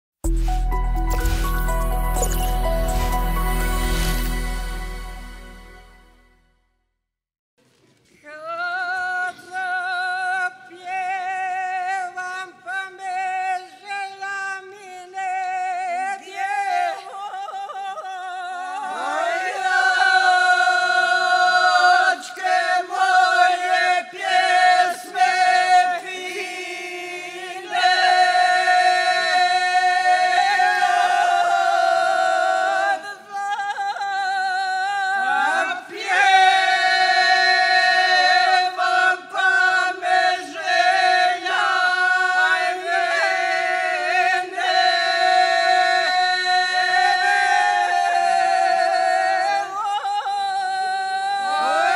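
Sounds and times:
group singing unaccompanied: 18.3s - 51.9s.

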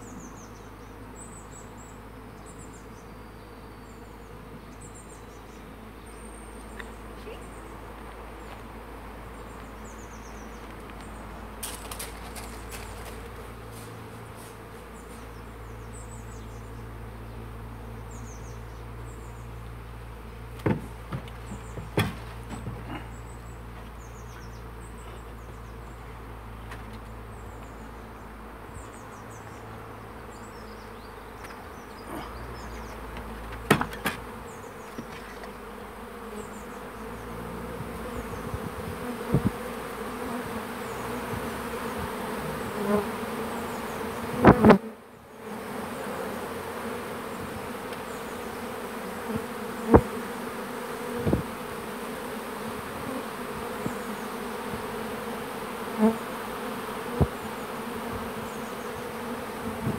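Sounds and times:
bee swarm buzzing: 0.0s - 59.9s
sharp knocks: 20.6s - 22.9s, 33.6s - 34.3s.

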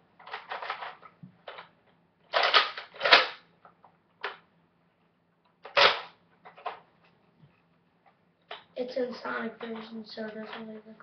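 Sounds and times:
plastic toy blaster clacking: 2.3s - 3.4s, 5.6s - 6.8s.

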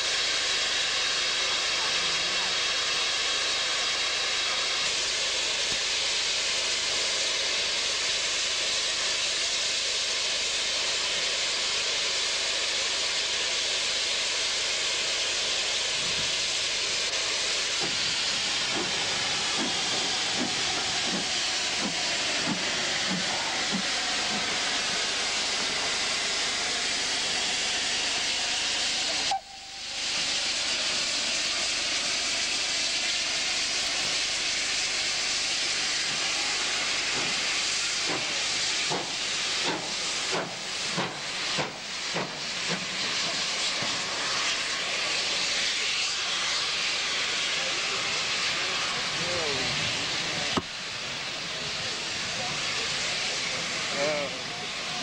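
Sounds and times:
steam hissing: 0.0s - 55.0s
locomotive exhaust beats: 16.0s - 27.4s.

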